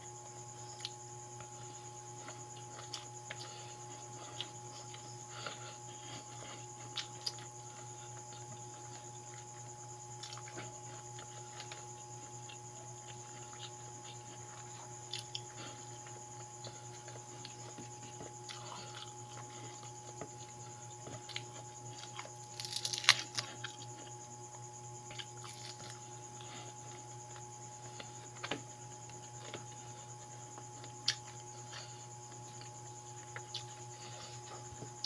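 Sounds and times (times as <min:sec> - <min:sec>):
person chewing: 0:02.2 - 0:09.4, 0:10.2 - 0:24.1, 0:25.1 - 0:29.7, 0:30.8 - 0:35.0
crisp fried fish crackling: 0:22.4 - 0:23.4.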